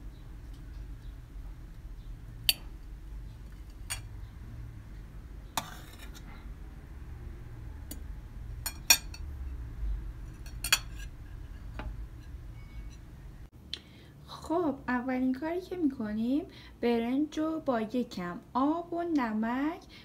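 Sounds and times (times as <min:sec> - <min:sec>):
steady low hum: 0:00.0 - 0:16.8
cutlery scraping on a plate: 0:05.6 - 0:06.4, 0:08.6 - 0:09.3, 0:10.2 - 0:13.1
metal cutlery clinking on a tray: 0:08.7 - 0:09.3, 0:10.4 - 0:13.0.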